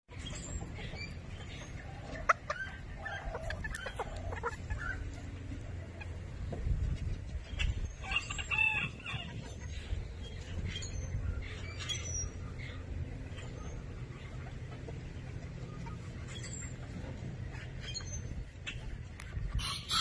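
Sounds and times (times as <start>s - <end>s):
chicken calling: 0.1s - 6.5s, 7.5s - 20.0s
chickens clucking: 0.1s - 20.0s.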